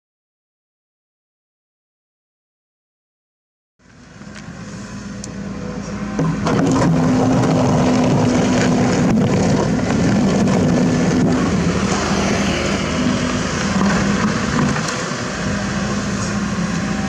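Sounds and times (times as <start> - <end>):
excavator diesel engine under load: 3.9 - 17.0.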